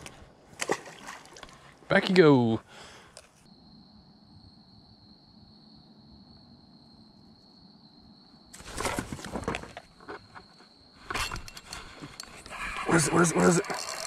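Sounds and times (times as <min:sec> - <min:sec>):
fishing rod rustling and knocking: 0:08.6 - 0:12.6.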